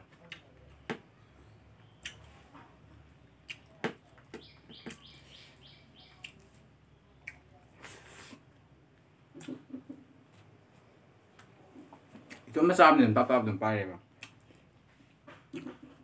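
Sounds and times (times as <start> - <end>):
person eating by hand: 0.0 - 1.0, 1.8 - 12.5, 14.1 - 16.0
high chirps: 4.4 - 6.6.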